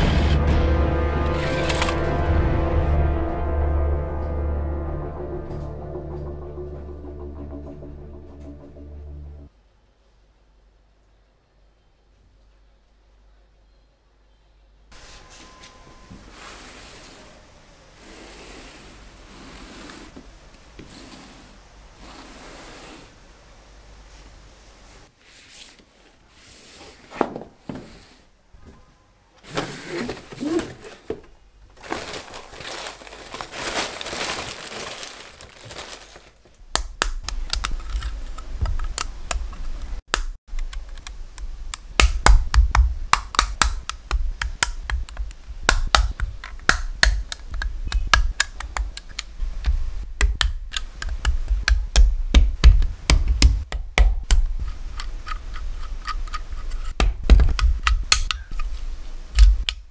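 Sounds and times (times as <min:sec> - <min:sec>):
cardboard packaging rustling: 0:29.5 - 0:36.6
plastic bricks snapping together: 0:36.7 - 0:38.1, 0:40.1 - 0:49.3, 0:57.0 - 0:58.6.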